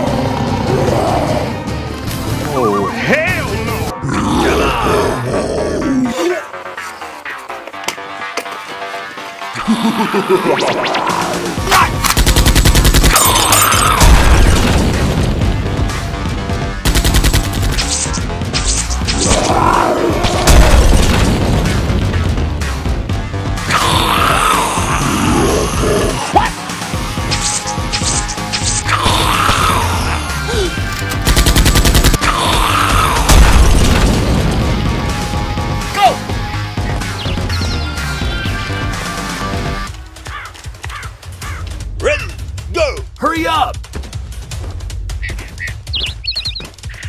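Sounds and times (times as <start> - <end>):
action music: 0.0 - 47.0
rapid gunfire: 12.0 - 15.6, 16.8 - 18.2, 20.2 - 22.4, 31.1 - 32.4.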